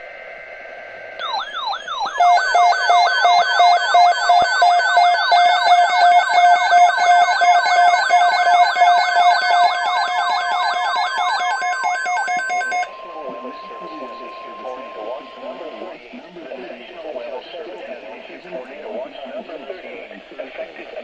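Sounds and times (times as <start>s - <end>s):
falling electronic alarm sweeps: 1.2s - 16.0s
on-off beeping tones: 1.2s - 16.0s.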